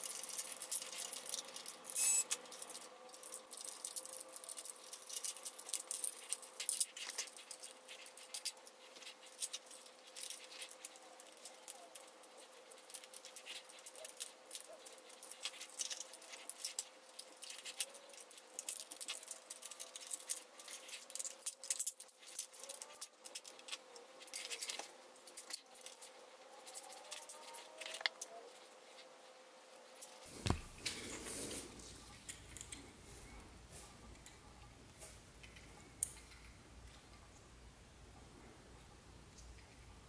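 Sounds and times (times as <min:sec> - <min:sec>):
plastic parts clicking and rattling: 0:00.0 - 0:29.0
faint steady hum: 0:00.0 - 0:40.0.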